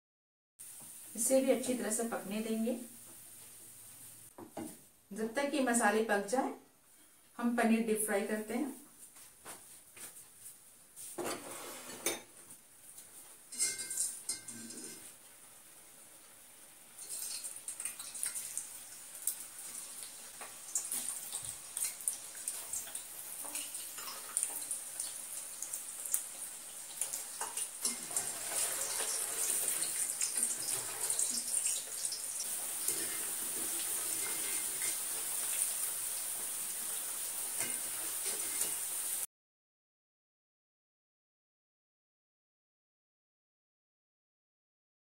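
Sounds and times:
deep-frying sizzle: 12.8 - 39.3
oil popping and crackling: 17.0 - 38.9.

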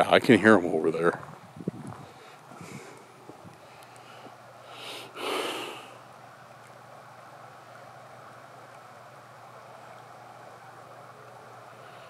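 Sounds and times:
person breathing heavily: 1.9 - 6.0.

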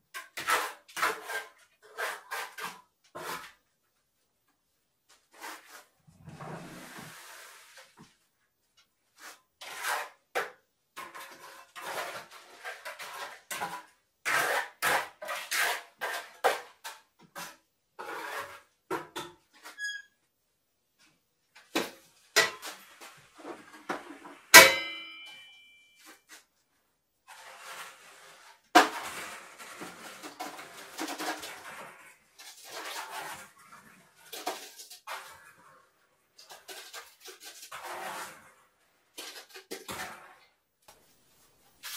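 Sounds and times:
scraping concrete in mixer drum: 9.2 - 10.2, 11.0 - 16.7, 17.4 - 18.7, 27.3 - 40.4
metallic clang: 24.6 - 25.9.

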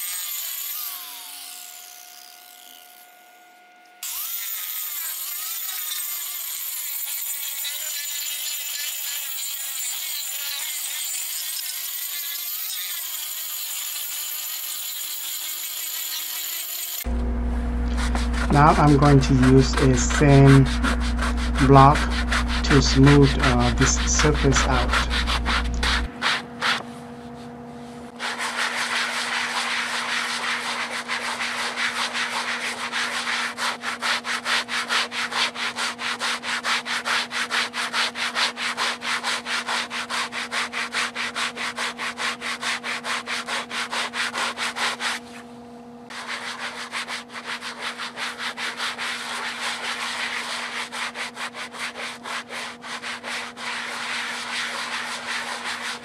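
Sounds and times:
sanding block on wood: 0.0 - 2.7, 4.0 - 17.1, 17.9 - 26.8, 28.2 - 45.4, 46.1 - 56.0.

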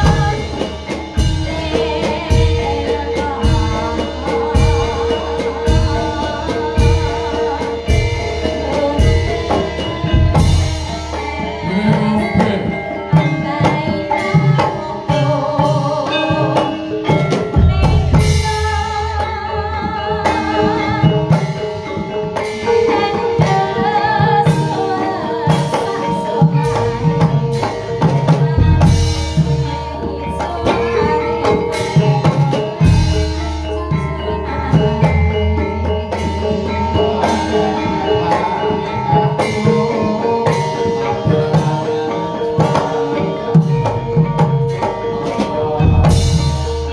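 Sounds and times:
loud music with drums: 0.0 - 46.9.

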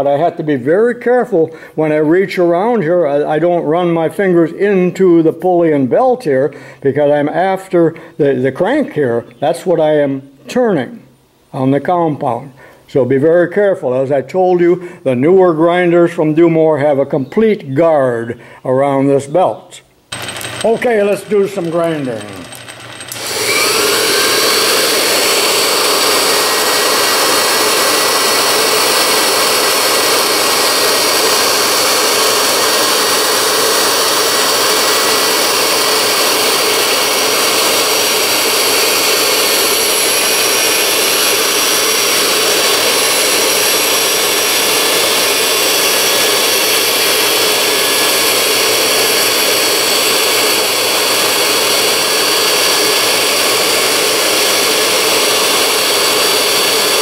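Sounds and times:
wheel grinding steel: 20.1 - 27.2
grinder motor whine: 20.1 - 57.0.

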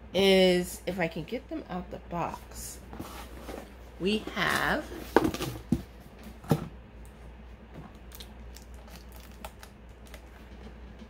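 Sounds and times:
cardboard boxes clicking and rustling: 4.4 - 5.8.

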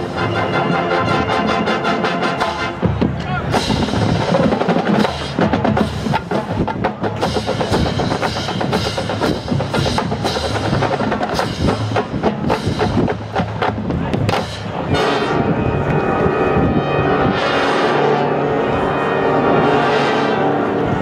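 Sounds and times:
marching band chord: 0.0 - 21.0
rapid marching drum hits: 2.8 - 14.9.

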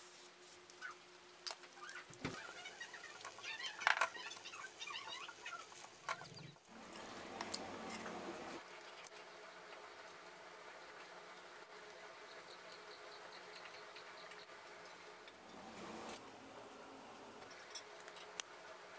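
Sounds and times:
steady hiss: 0.0 - 1.4, 5.6 - 18.9.

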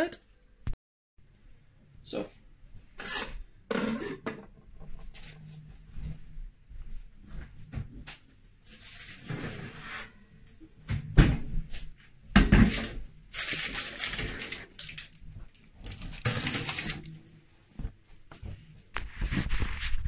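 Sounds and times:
baking paper crinkling: 8.7 - 9.3, 12.7 - 17.1, 19.0 - 20.0.

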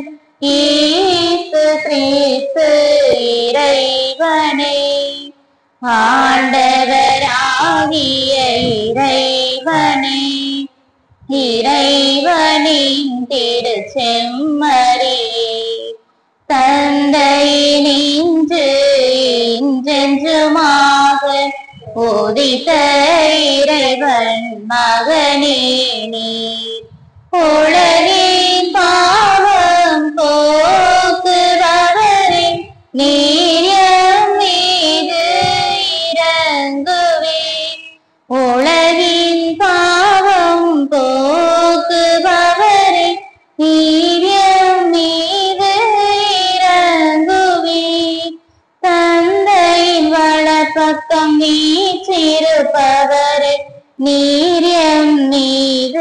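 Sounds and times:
high voice singing a hymn: 0.0 - 56.0.

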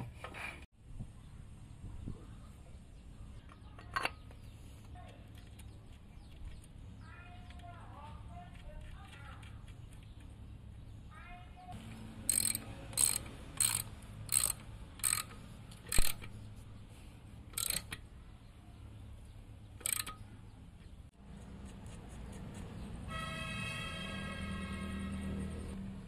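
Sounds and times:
ratchet wrench clicking: 12.3 - 16.4, 17.5 - 18.0, 19.8 - 20.2.

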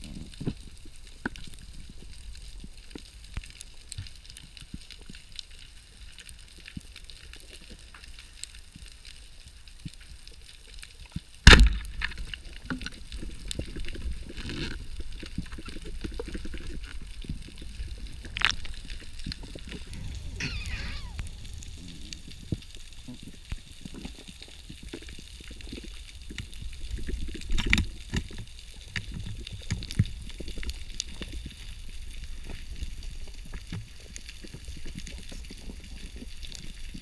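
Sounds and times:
tiny underwater clicks: 0.4 - 31.7
speargun crack underwater: 11.4 - 13.7
churning water rumble: 15.7 - 24.8.

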